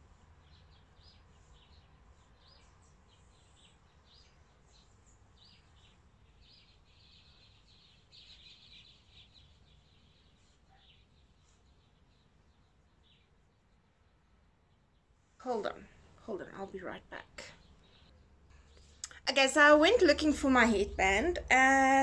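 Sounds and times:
faint birds chirping: 0.0 - 22.0.

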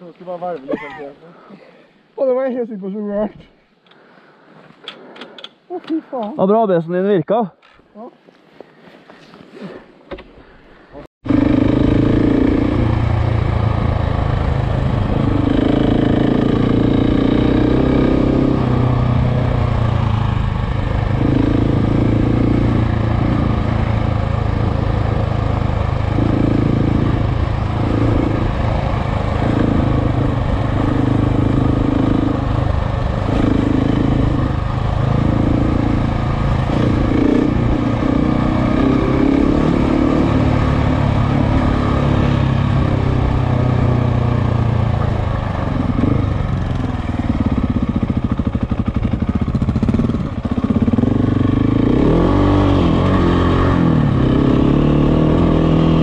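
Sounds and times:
motorcycle engine revving: 11.2 - 56.0.

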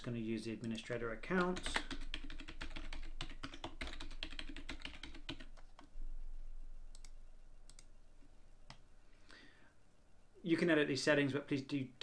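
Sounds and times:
typing on a keyboard: 0.0 - 5.9.

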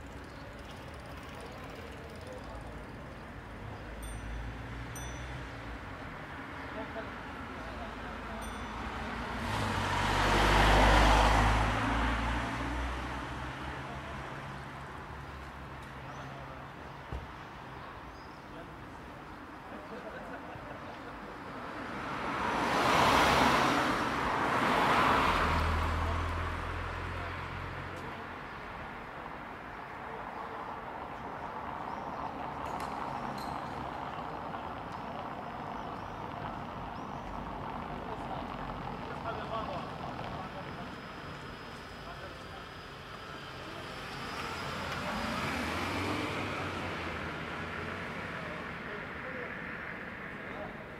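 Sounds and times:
distant traffic: 0.0 - 50.9.

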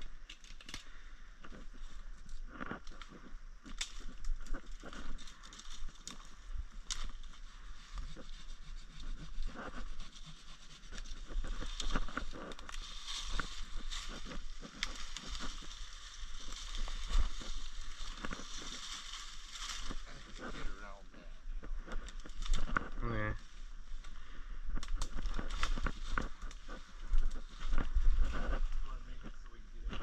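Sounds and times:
twigs snapping: 0.0 - 8.2, 10.9 - 20.5, 21.6 - 23.0, 23.9 - 28.9
leaves and branches rustling: 0.0 - 30.0
footsteps through dry leaves: 12.8 - 20.5.

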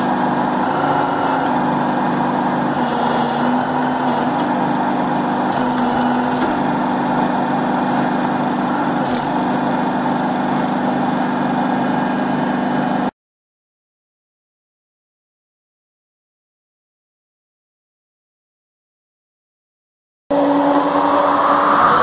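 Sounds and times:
circular saw running: 0.0 - 13.1, 20.3 - 22.0.

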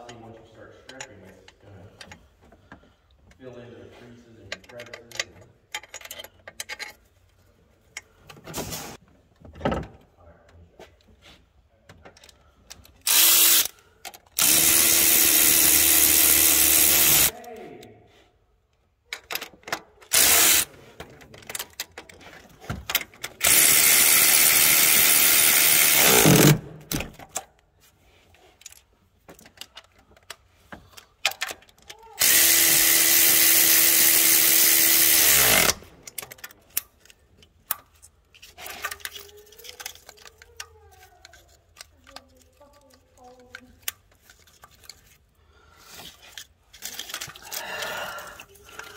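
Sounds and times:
power tool motor running: 13.1 - 13.7, 14.4 - 17.3, 20.1 - 20.7, 23.4 - 26.6, 32.2 - 35.8.

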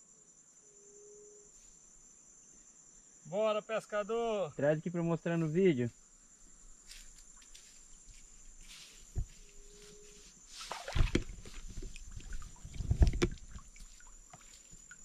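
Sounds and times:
crickets trilling: 0.0 - 15.0
low thumps: 11.0 - 13.7.

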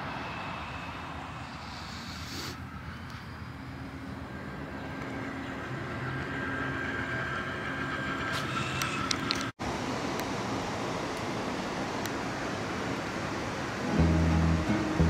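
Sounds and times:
train rumble from inside: 0.0 - 9.6.

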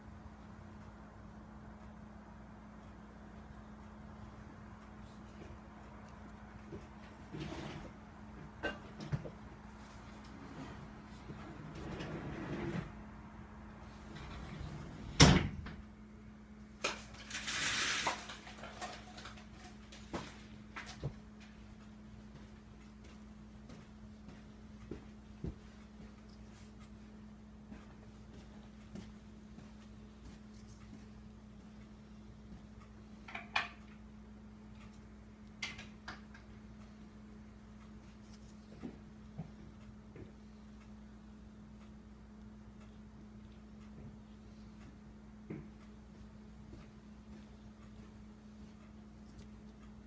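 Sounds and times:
faint steady hum: 0.0 - 50.0.

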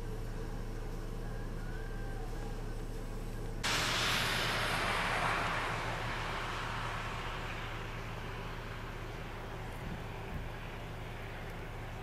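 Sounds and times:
vehicle idling hum: 0.0 - 12.0
rush of hiss: 3.6 - 12.0.

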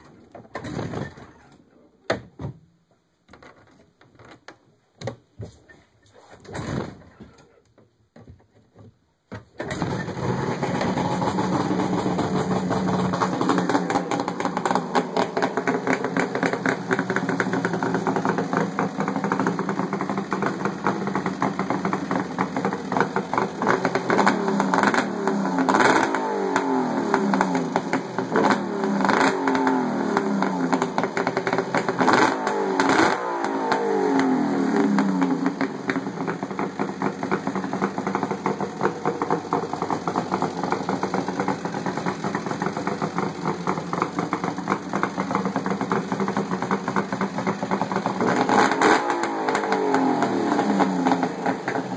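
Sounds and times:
snowmobile engine revving: 32.0 - 35.5, 48.2 - 51.7.

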